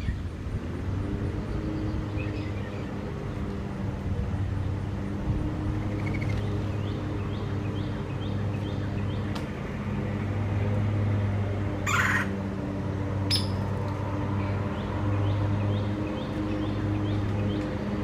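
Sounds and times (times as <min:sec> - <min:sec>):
small birds chirping: 0:01.2 - 0:03.8, 0:05.7 - 0:09.6, 0:13.3 - 0:18.0
harsh bird call: 0:11.8 - 0:12.3.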